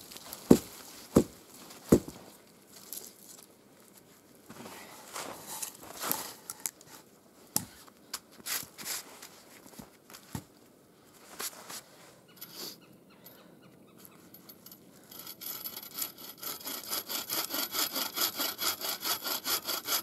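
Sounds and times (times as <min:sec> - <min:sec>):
heavy thumps in snow: 0:00.0 - 0:02.3
rustling: 0:00.0 - 0:07.0.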